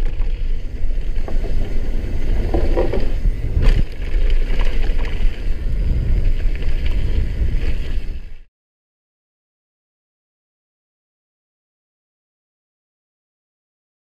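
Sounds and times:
bike parts rattling: 0:00.0 - 0:07.9
bike tyres rumbling over boardwalk: 0:00.0 - 0:08.5.

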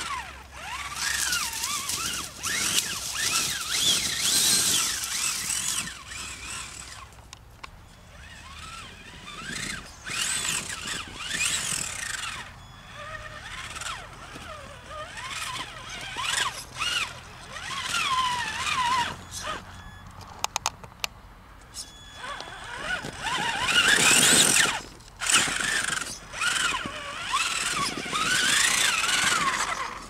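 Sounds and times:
electric motor whining: 0:00.0 - 0:20.3, 0:21.6 - 0:30.0
dirt and stones crunching: 0:00.0 - 0:30.0.

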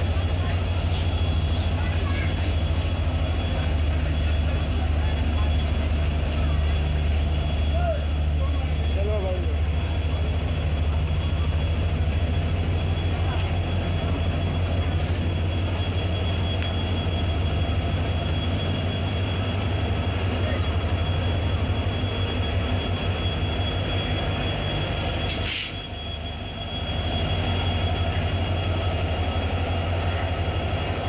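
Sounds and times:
diesel locomotive rumbling: 0:00.0 - 0:31.0
high-pitched whine: 0:00.0 - 0:31.0
brief hiss: 0:25.3 - 0:25.8.

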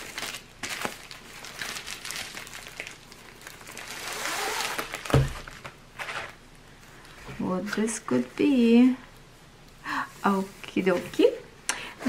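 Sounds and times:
plastic mailer crinkling: 0:00.0 - 0:06.4.

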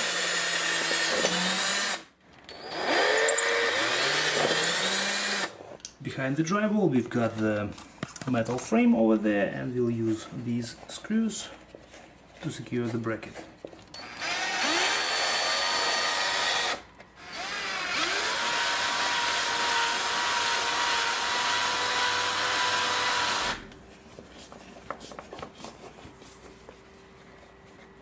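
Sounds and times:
power drill driving screws: 0:00.0 - 0:05.6, 0:14.0 - 0:23.7.

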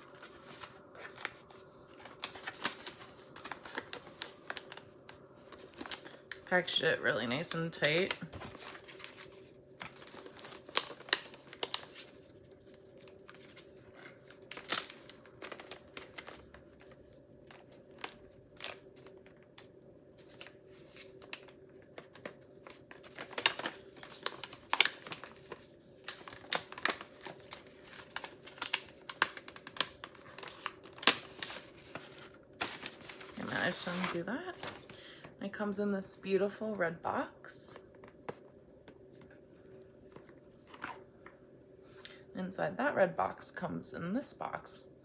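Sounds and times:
wrapping paper crinkling: 0:00.0 - 0:35.0.

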